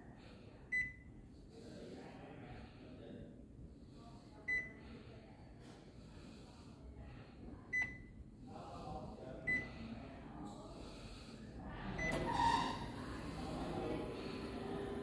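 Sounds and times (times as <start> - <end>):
copier control panel key beeps: 0.7 - 1.1, 4.5 - 4.8, 7.7 - 8.1, 9.5 - 9.7, 12.0 - 12.3.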